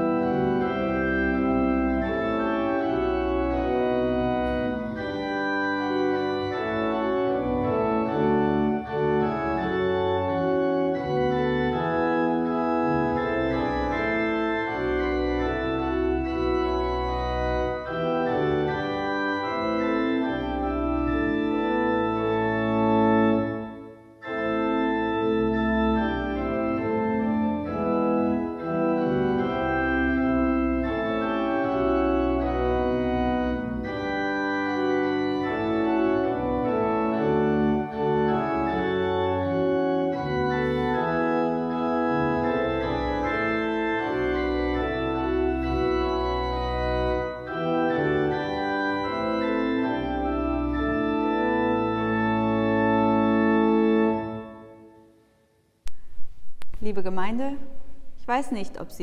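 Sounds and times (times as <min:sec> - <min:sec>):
pipe organ playing held chords: 0:00.0 - 0:55.2.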